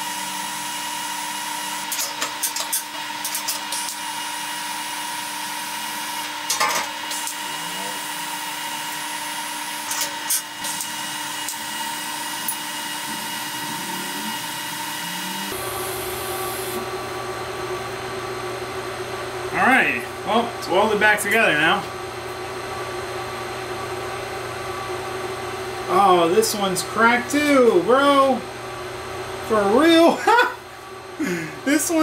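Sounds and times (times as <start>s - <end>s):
welding arc hissing and buzzing: 0.0s - 17.0s.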